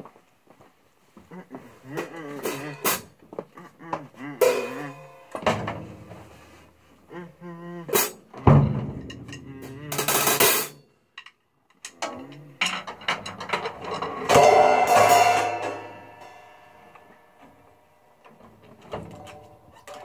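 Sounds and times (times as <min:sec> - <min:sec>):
drum kit hits: 0:08.0 - 0:10.8, 0:14.2 - 0:16.6
crash cymbal ringing: 0:14.4 - 0:18.0.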